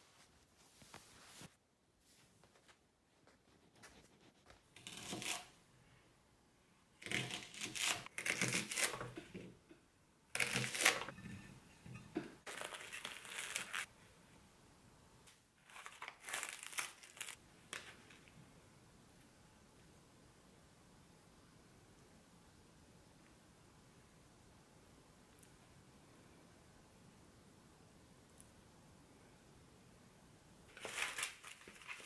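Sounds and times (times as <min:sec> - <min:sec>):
cling film crinkling: 0:12.4 - 0:13.9, 0:15.6 - 0:18.3, 0:30.7 - 0:32.0
plastic packaging crinkling: 0:12.4 - 0:13.9, 0:15.6 - 0:18.3, 0:30.7 - 0:32.0.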